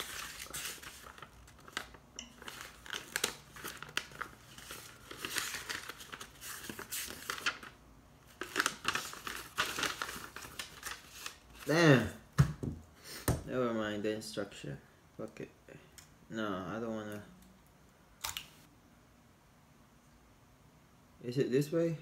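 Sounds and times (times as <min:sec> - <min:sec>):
paper booklet rustling: 0:00.0 - 0:12.0.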